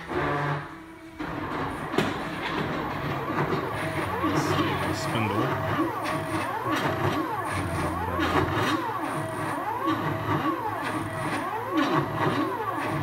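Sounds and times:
stepper motors whining: 1.2s - 13.0s
spindle low hum: 2.2s - 11.6s.

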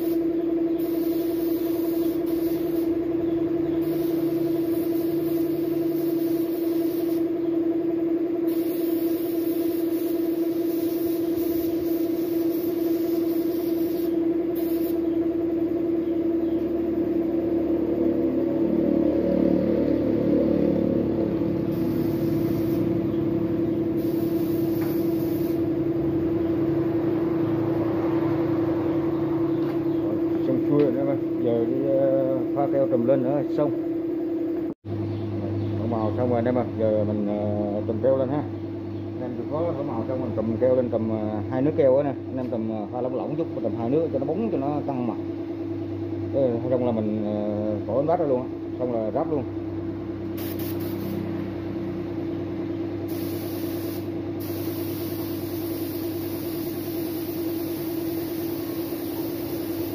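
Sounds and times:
spray gun hissing: 0.0s - 3.0s, 3.8s - 7.4s, 8.5s - 15.1s, 21.6s - 23.1s, 23.9s - 25.7s, 50.4s - 51.2s, 53.1s - 59.9s
air compressor humming: 0.0s - 59.9s.

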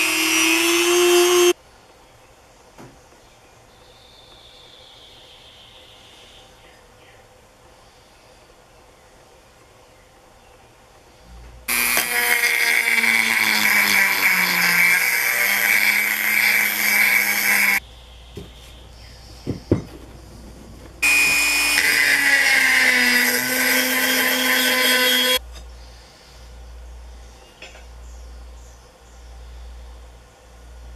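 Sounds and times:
rotary tool polishing metal whine: 0.0s - 1.6s, 11.7s - 17.8s, 21.0s - 25.4s.

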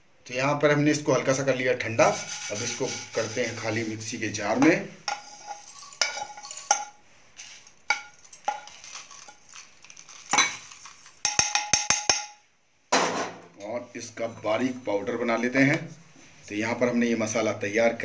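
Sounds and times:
spoon scraping a pan: 1.8s - 11.7s
seeds pattering into a jar: 7.4s - 11.4s
spoon tapping on metal: 11.2s - 12.4s.

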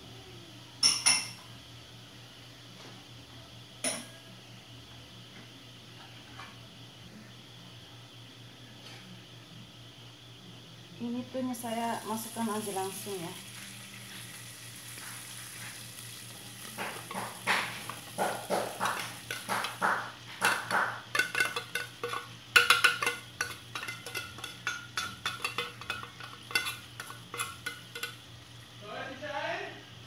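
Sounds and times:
food sizzling in a pot: 11.0s - 30.0s
spatula scraping and knocking pot: 16.6s - 28.3s.

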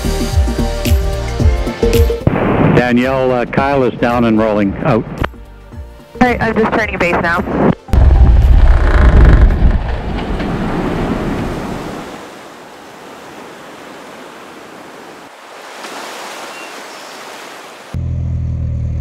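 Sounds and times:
wind on microphone: 7.4s - 12.2s
surf washing: 9.9s - 18.0s.

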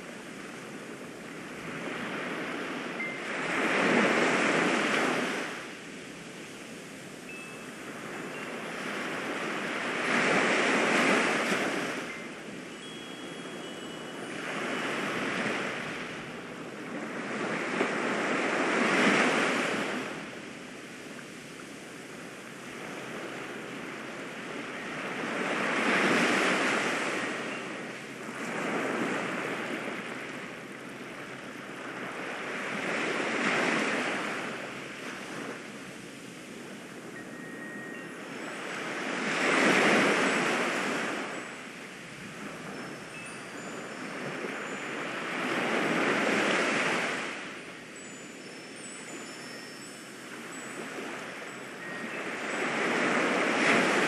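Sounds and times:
ocean waves washing in: 21.4s - 54.0s.

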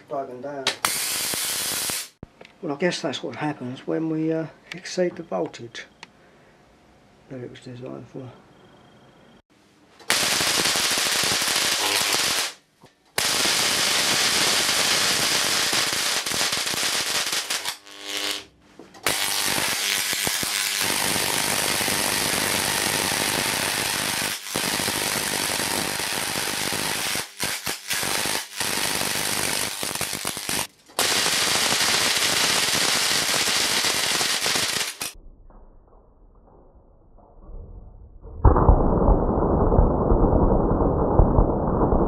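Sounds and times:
high-voltage arcs crackling: 0.7s - 2.2s, 10.1s - 12.6s, 13.2s - 35.2s.

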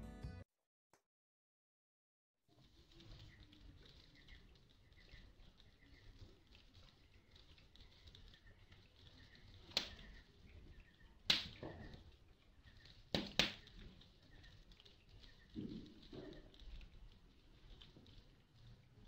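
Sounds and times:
firewood crackling: 2.5s - 19.0s
sharp wood pops: 9.7s - 10.2s, 11.2s - 12.0s, 12.9s - 14.0s.

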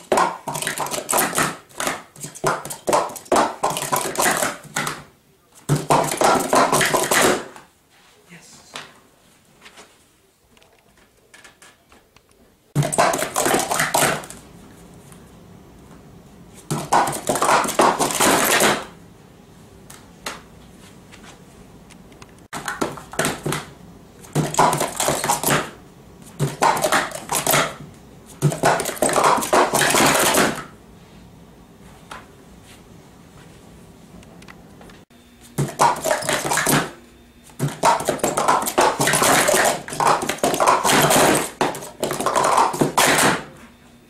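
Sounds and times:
plastic cups clattering: 0.0s - 5.0s, 5.7s - 7.5s, 12.8s - 14.4s, 16.7s - 18.9s, 24.3s - 25.7s, 26.4s - 27.8s, 28.4s - 30.6s, 35.6s - 36.9s, 37.6s - 43.4s.

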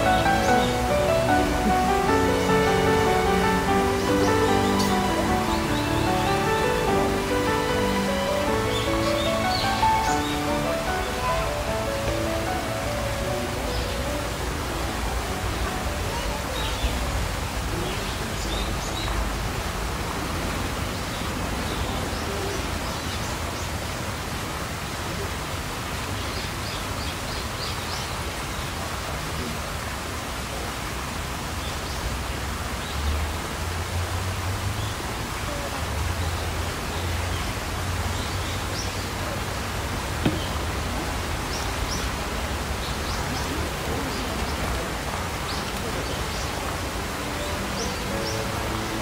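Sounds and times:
faint indistinct voices: 0.0s - 19.7s, 38.6s - 49.0s.

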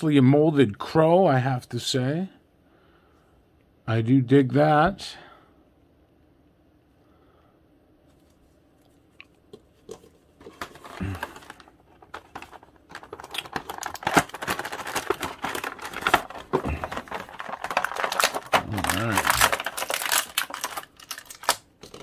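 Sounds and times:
plastic packaging crinkling: 9.5s - 22.0s.

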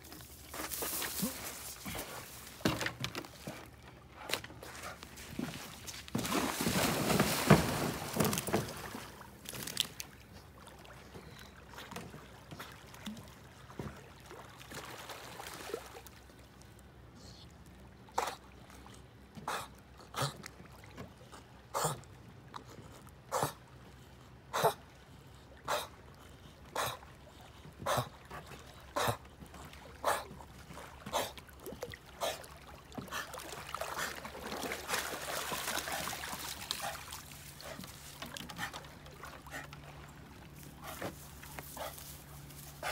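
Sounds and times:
dog splashing in water: 5.2s - 10.0s, 32.2s - 39.7s.

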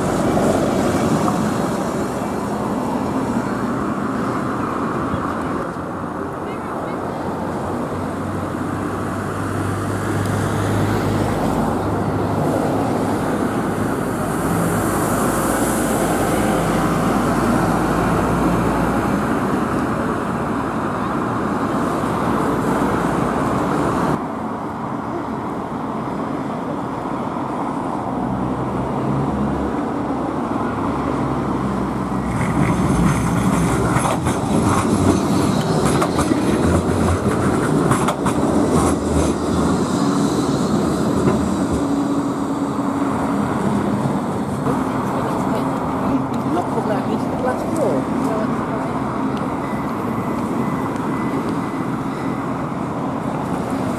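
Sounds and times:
bus diesel engine: 0.0s - 53.9s
street traffic: 0.0s - 53.9s
tram wheels clattering over rails: 32.0s - 53.9s.

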